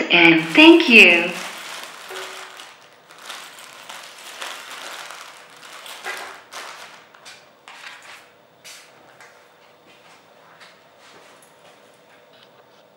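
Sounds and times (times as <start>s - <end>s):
plastic bag crinkling: 0.3s - 8.3s.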